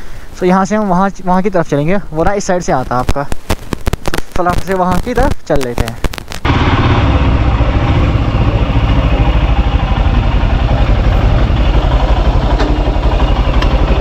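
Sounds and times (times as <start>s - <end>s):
motorcycle engine running: 6.4s - 14.0s.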